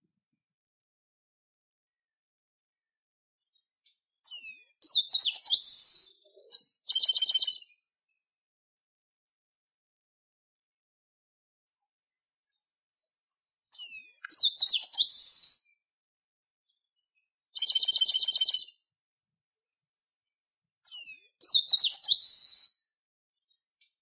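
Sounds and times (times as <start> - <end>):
blackbird whistles ending in buzz: 14.6 - 15.6
fast rattling bird trill: 17.6 - 18.7.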